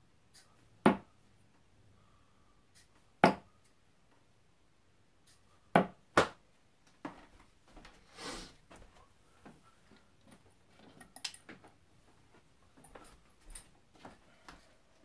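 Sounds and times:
darts striking dartboard: 0:00.8 - 0:01.1, 0:03.2 - 0:03.5.

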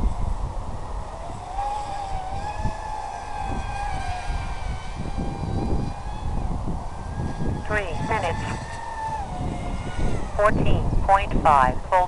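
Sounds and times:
model aircraft motors whining: 0:00.0 - 0:12.0
wind rumble on microphone: 0:00.0 - 0:12.0.

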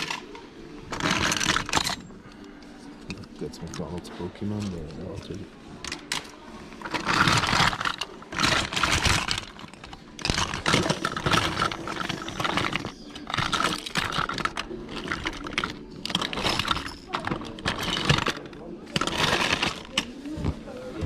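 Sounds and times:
plastic toys clattering: 0:00.0 - 0:21.0.

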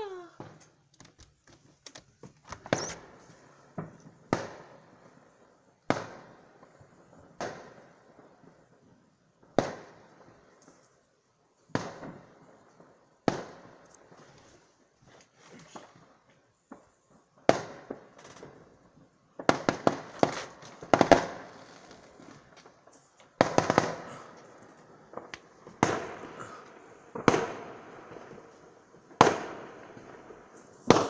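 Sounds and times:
small firework pops: 0:00.3 - 0:05.1, 0:05.8 - 0:08.8, 0:09.4 - 0:11.1, 0:11.7 - 0:31.0
fireworks bangs with echo: 0:02.8 - 0:08.8, 0:09.4 - 0:10.6, 0:11.7 - 0:14.2, 0:16.7 - 0:31.0.

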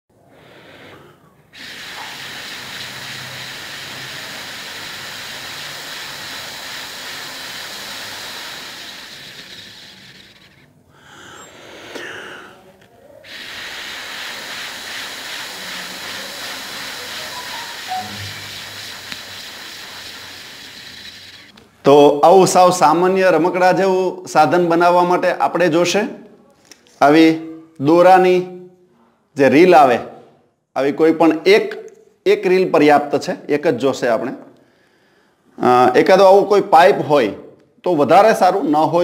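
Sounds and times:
breath blown through tube hissing: 0:00.2 - 0:21.6.

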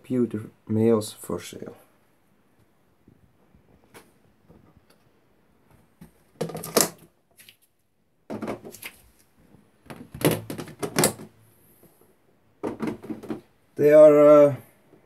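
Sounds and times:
plastic containers clattering: 0:06.0 - 0:07.2, 0:08.3 - 0:09.0, 0:09.8 - 0:11.4, 0:12.6 - 0:13.6.

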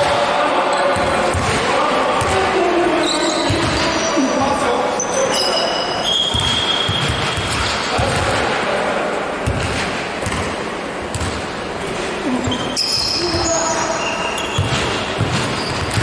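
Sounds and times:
basketball dribbling thuds: 0:01.0 - 0:01.6, 0:03.4 - 0:03.9, 0:06.3 - 0:08.4, 0:09.4 - 0:10.5, 0:11.1 - 0:11.4, 0:14.6 - 0:16.0
shoes squeaking on floor: 0:03.0 - 0:04.4, 0:05.0 - 0:07.5, 0:12.2 - 0:16.0.

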